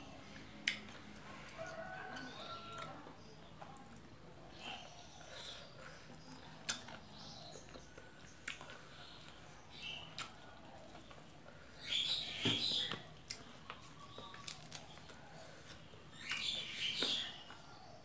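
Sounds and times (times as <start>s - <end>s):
wet chewing: 5.1s - 11.3s, 12.9s - 16.5s.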